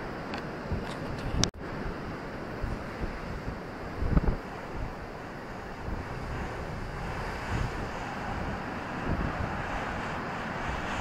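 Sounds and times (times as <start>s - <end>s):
wind buffeting microphone: 0.0s - 11.0s
sea surf breaking on beach: 1.6s - 11.0s.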